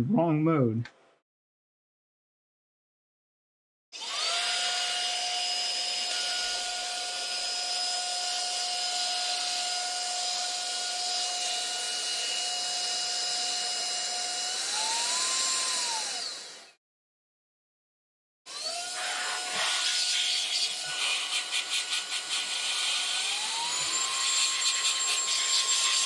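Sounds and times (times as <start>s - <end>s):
handheld vacuum motor whine: 4.0s - 16.8s, 18.5s - 26.0s.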